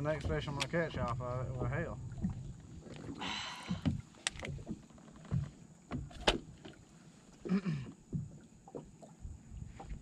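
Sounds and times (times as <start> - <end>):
sharp knocks on hull: 0.0 - 2.4, 3.7 - 6.8
small waves lapping against boat hull: 0.0 - 10.0.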